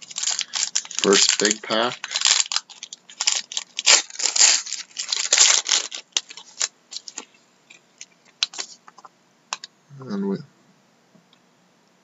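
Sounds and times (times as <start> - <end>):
foil wrapper tearing and crinkling: 0.0 - 7.3, 8.0 - 8.8.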